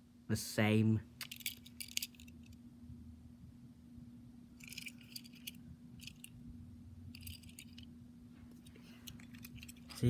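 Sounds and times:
steady low hum: 0.0 - 10.0
toy car clicking and rattling: 1.2 - 2.3, 4.6 - 6.3, 7.1 - 7.9, 9.0 - 10.0.

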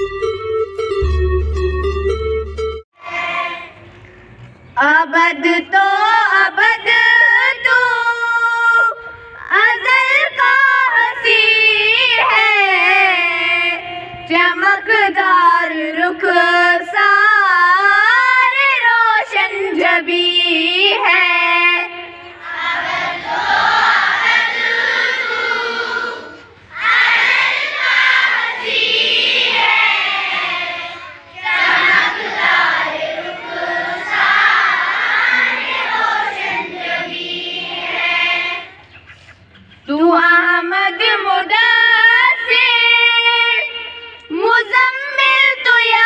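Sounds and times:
children singing in unison: 3.0 - 4.0, 20.8 - 38.8.

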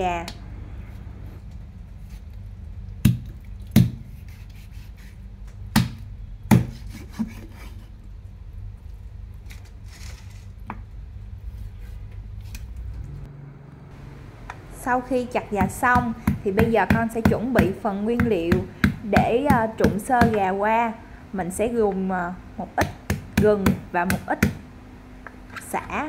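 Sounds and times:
low hum: 0.0 - 3.7, 7.8 - 18.8
cleaver chopping on wooden board: 5.8 - 6.8.

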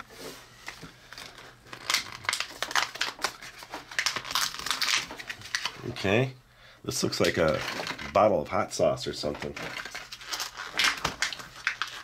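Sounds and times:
plastic blister pack crackling: 1.1 - 6.1, 9.2 - 12.0.

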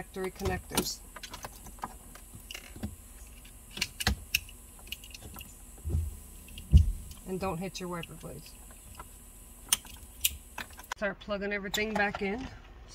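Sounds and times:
low thump: 5.9 - 7.0.

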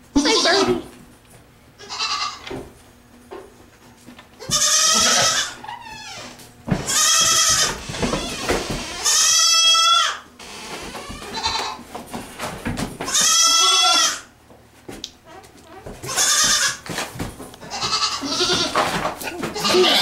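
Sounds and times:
goats bleating: 0.2 - 0.9, 1.8 - 2.4, 4.4 - 11.8, 13.0 - 14.3, 16.0 - 16.9, 17.6 - 20.0.

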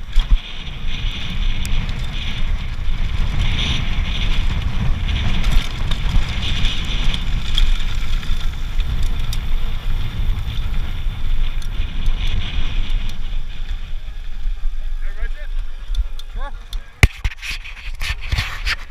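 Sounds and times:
bike clicks and rattles: 0.0 - 18.9
bike tyres rolling on gravel: 0.0 - 18.9
wind on microphone: 0.0 - 18.9.

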